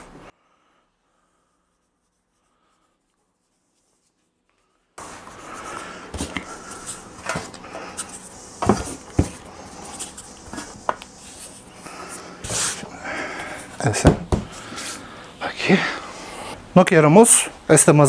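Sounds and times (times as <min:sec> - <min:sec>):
dough handling noise: 0:02.0 - 0:15.1.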